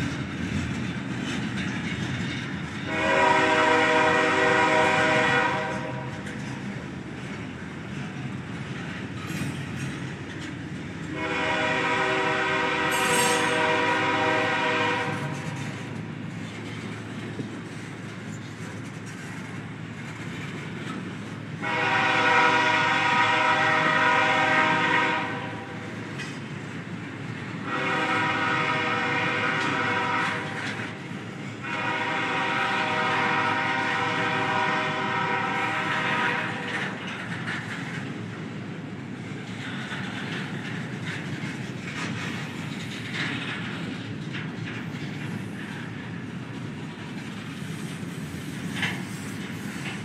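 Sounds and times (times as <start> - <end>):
freight cars rumbling on rails: 0.0 - 50.0
locomotive air horn blasts: 2.9 - 6.1, 11.1 - 15.5, 21.6 - 25.8, 27.6 - 30.6, 31.6 - 36.7.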